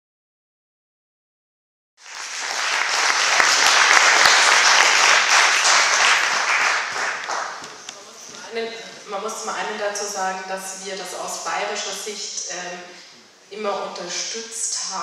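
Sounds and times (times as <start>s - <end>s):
audience applauding: 2.0s - 7.9s.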